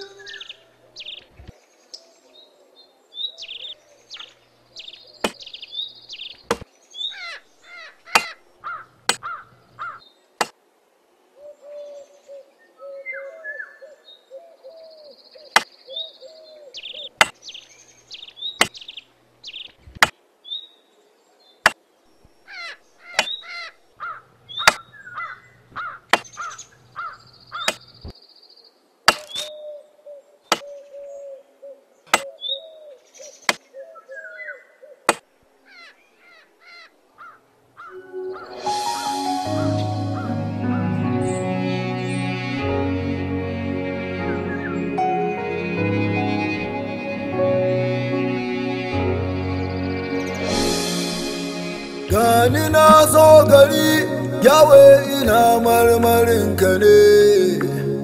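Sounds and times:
birds calling: 0.0 - 10.1, 11.4 - 20.6, 21.6 - 28.1, 35.7 - 58.0
machete chopping dry wood: 29.1 - 29.5.

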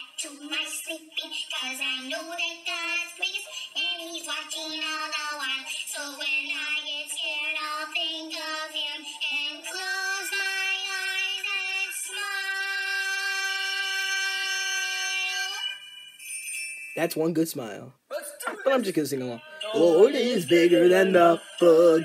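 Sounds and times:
high-pitched cartoon voices singing: 0.0 - 15.7, 19.4 - 22.0
music: 19.4 - 22.0.

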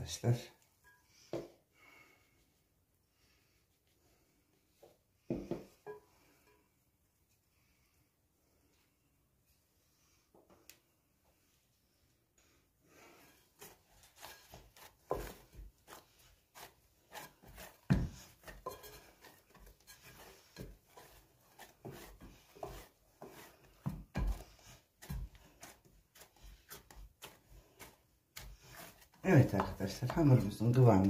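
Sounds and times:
dough squishing: 13.1 - 31.0.

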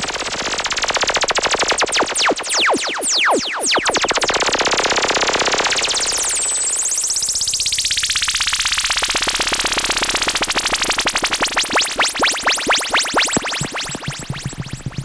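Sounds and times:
synthesizer repeating pulses: 5.8 - 15.0.

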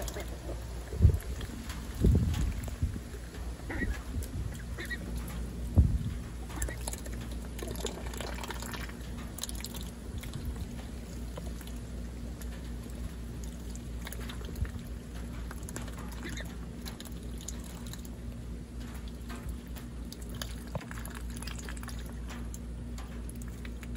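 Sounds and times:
ducks dabbling in water: 0.0 - 23.9
steady low rumble: 0.0 - 23.9.

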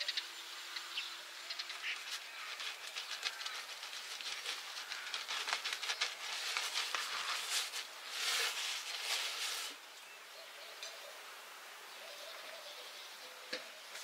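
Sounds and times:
pastry brush scratching on crust: 1.8 - 9.8.

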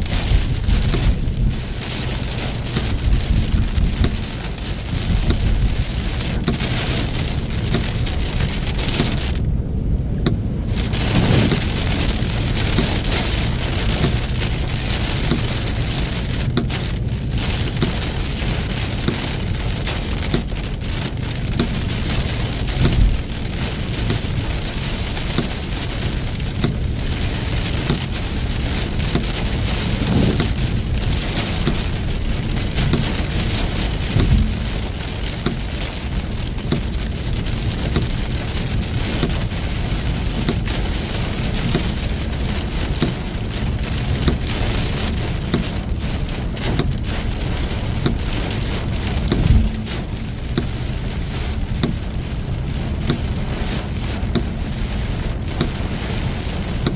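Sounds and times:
heavy rain falling: 0.0 - 56.9
low thumps: 28.9 - 35.8, 49.0 - 50.6.

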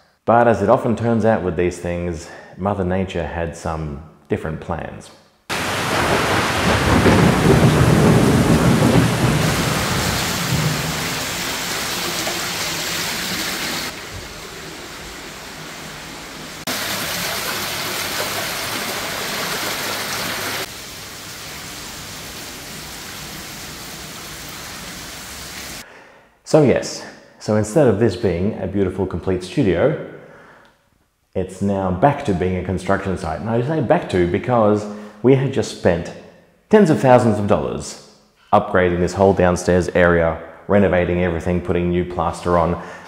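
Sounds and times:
heavy rain pouring: 5.5 - 25.8
low rumble of thunder: 5.6 - 12.2.

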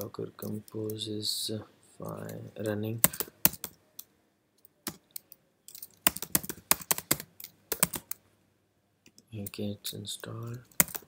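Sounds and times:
typing on computer keyboard: 3.0 - 3.8, 4.8 - 8.2, 10.7 - 11.0.

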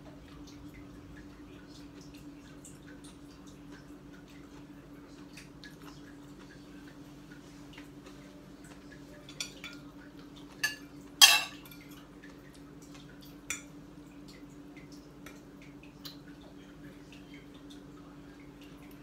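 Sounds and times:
low steady hum: 0.0 - 19.0
fork clinking on plates and pan: 10.5 - 11.9.

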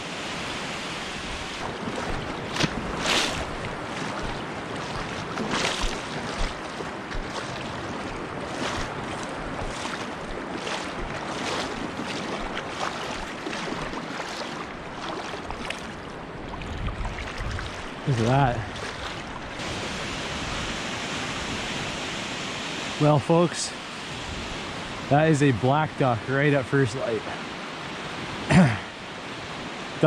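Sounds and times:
wind noise on microphone: 0.0 - 12.6, 16.4 - 22.4
water sloshing and splashing: 1.2 - 21.9.

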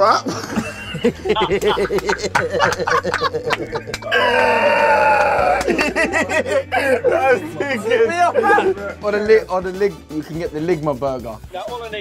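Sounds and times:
men laughing hard: 0.0 - 9.0.

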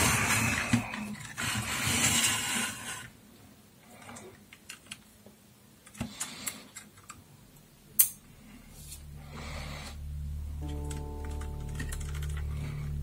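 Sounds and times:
low steady hum: 7.5 - 13.0.

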